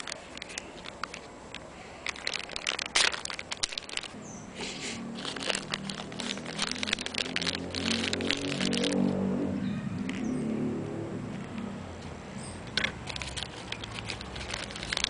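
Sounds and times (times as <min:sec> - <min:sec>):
plastic wrapping crinkling: 0:00.0 - 0:04.3, 0:05.0 - 0:10.5, 0:12.8 - 0:15.0
vehicle engine hum: 0:00.0 - 0:15.0.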